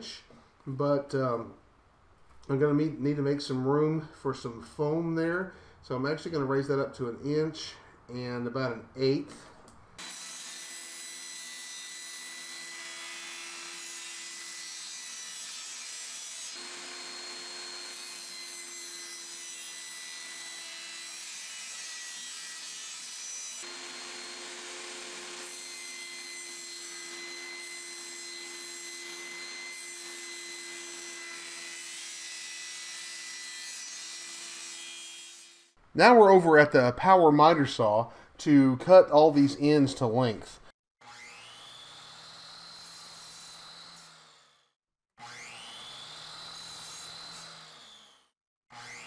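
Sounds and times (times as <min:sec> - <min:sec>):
table saw cutting hardboard: 0:10.0 - 0:35.8, 0:41.0 - 0:49.0.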